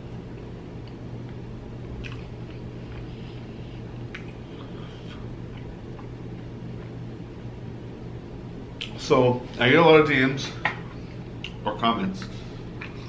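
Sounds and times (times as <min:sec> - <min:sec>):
man chewing food: 0:00.0 - 0:07.9, 0:10.8 - 0:11.6, 0:12.6 - 0:13.0
steady low hum: 0:00.0 - 0:13.0
wet mouth clicks: 0:02.0 - 0:02.3, 0:04.0 - 0:04.8, 0:11.4 - 0:11.6.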